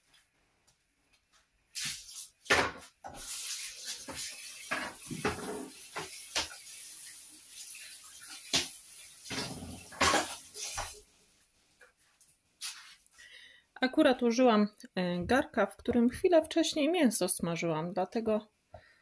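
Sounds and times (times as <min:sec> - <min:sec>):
running water: 0:03.1 - 0:11.3.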